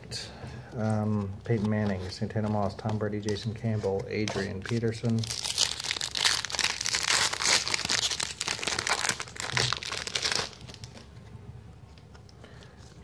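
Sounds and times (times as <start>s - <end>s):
cards being handled: 0.8s - 11.2s
wrapper crinkling and tearing: 4.2s - 11.1s.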